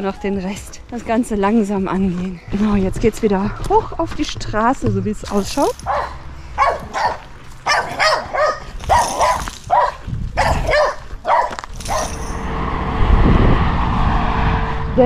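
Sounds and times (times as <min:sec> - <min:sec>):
car approaching: 0:00.0 - 0:15.0
dog barking: 0:05.8 - 0:12.2.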